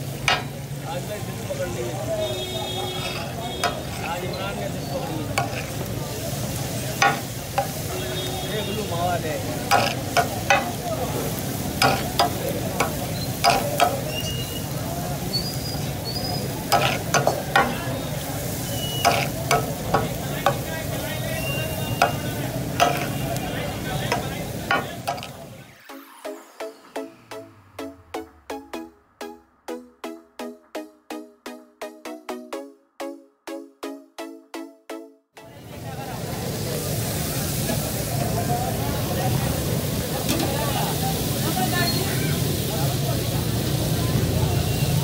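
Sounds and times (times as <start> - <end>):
chicken sizzling in oil: 0.0 - 25.6, 35.6 - 45.0
metal spatula clacking on griddle: 0.2 - 0.6, 2.9 - 4.5, 5.3 - 5.9, 7.0 - 7.9, 9.6 - 14.3, 15.7 - 23.4, 24.0 - 25.4.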